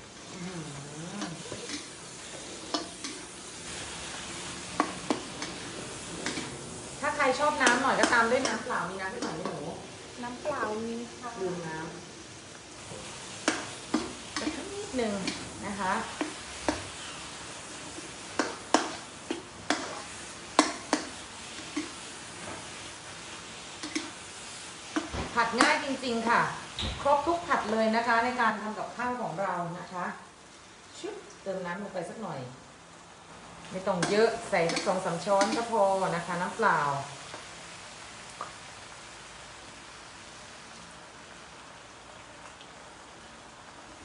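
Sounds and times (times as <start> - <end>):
food sizzling in a wok: 0.0 - 44.0
metal spatula scraping: 0.7 - 6.6.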